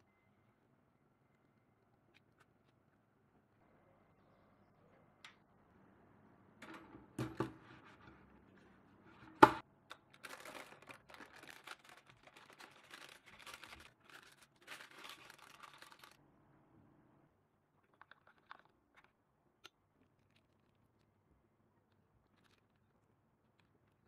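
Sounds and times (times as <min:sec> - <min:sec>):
crinkling handling noises: 0:09.9 - 0:16.2, 0:17.8 - 0:24.0.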